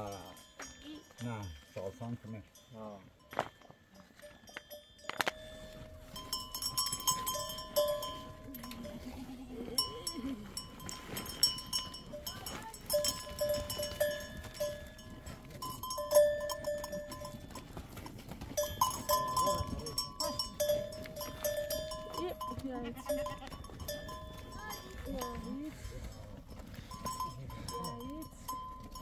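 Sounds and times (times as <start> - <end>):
livestock neck bells clinking: 0.0 - 29.0
goat or sheep bleating: 8.2 - 11.4, 19.0 - 25.1.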